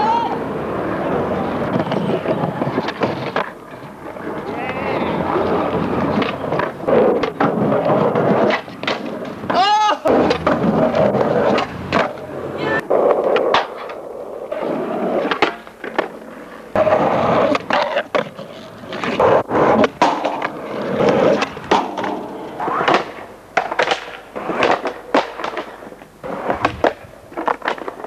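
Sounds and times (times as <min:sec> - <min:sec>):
skateboard clacking: 0:00.0 - 0:28.0
skateboard wheels rolling: 0:00.0 - 0:28.0.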